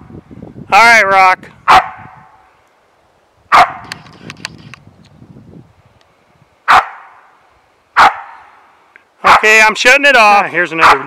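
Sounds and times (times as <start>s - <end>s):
dog barking: 1.7s - 2.2s, 3.5s - 3.9s, 6.7s - 7.2s, 8.0s - 8.4s, 10.8s - 11.0s.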